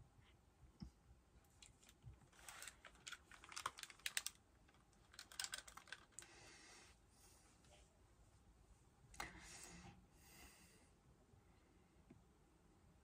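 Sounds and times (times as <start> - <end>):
headphones rustling: 1.5 - 6.4
computer keyboard clicking: 5.1 - 6.2.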